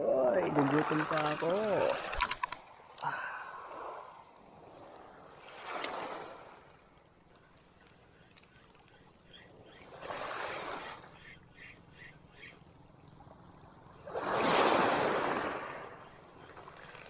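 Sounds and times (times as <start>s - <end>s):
waves washing over pebbles: 0.3s - 2.9s, 3.6s - 6.8s, 10.0s - 11.1s, 14.1s - 17.0s.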